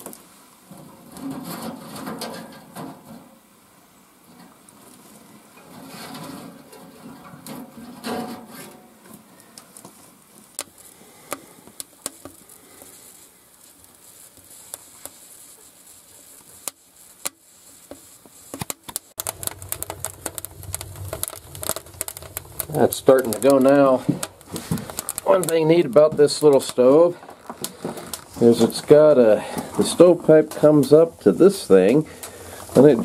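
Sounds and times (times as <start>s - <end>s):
fire pops: 0.0s - 3.6s, 4.2s - 33.0s
kindling crackling in stove: 0.0s - 33.0s
low fire rumble: 19.1s - 33.0s.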